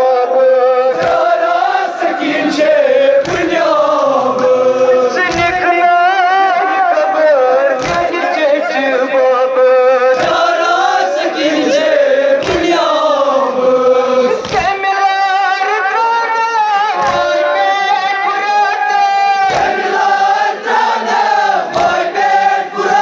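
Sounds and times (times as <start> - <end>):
group of voices chanting: 0.9 - 5.8, 10.0 - 14.8, 19.4 - 23.0.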